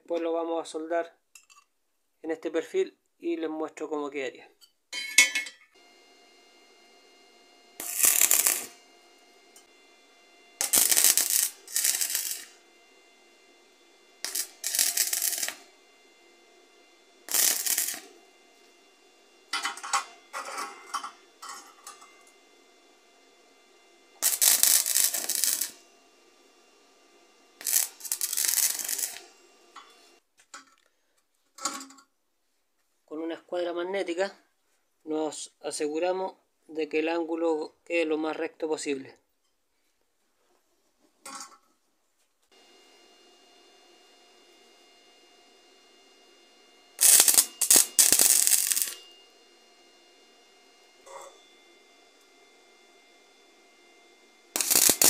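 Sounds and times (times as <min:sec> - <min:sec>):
arc welder crackling: 0:05.8 - 0:30.3, 0:42.5 - 0:53.7, 0:54.4 - 0:55.0.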